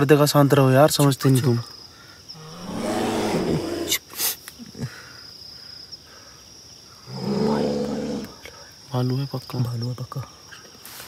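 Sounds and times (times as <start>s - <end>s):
long animal calls: 2.4s - 4.0s.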